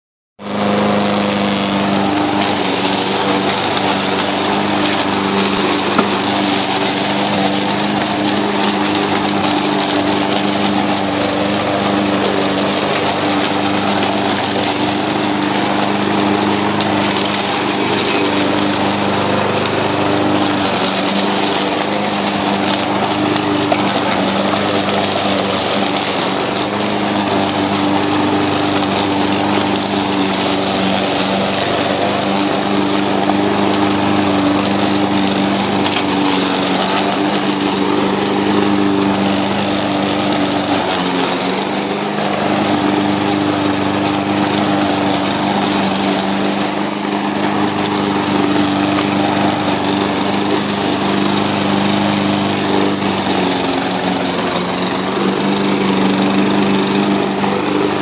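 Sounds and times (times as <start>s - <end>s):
lawn mower engine running: 0.4s - 58.0s.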